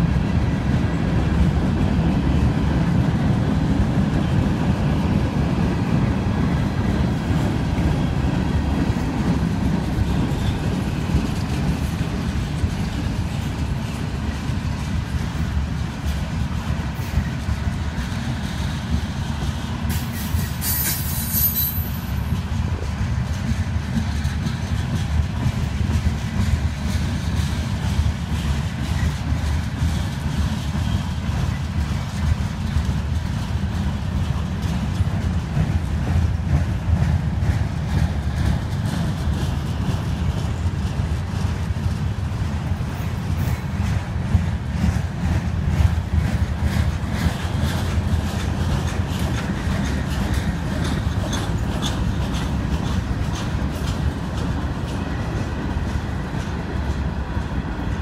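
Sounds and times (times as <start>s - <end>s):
train wheels rumbling on rails: 0.0s - 58.0s
wheel squeal: 20.0s - 22.2s.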